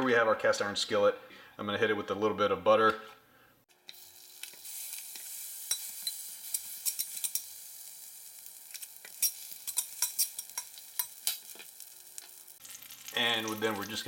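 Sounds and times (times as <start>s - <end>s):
butter sizzling in a skillet: 3.7s - 14.0s.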